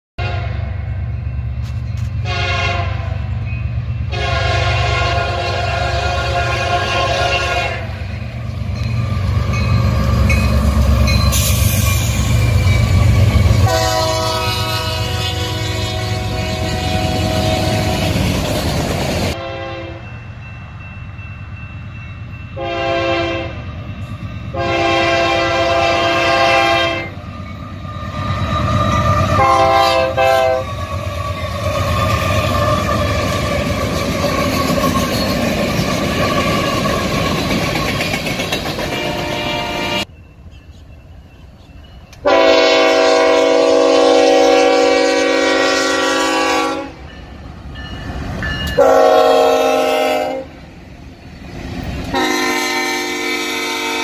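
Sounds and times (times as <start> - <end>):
locomotive air horn blasts: 0.2 - 0.8, 2.2 - 3.3, 4.1 - 8.1, 13.5 - 18.3, 19.3 - 20.1, 22.6 - 23.6, 24.5 - 27.2, 29.3 - 30.7, 38.9 - 40.1, 42.2 - 47.0, 48.8 - 50.6, 52.1 - 54.0
train rumble: 0.2 - 54.0.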